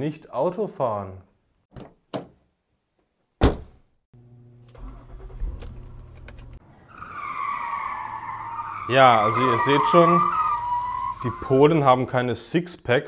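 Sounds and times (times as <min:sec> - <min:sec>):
car door shutting: 0:03.4 - 0:03.8
car engine starting and running: 0:04.2 - 0:11.4
tyres squealing: 0:06.8 - 0:12.0.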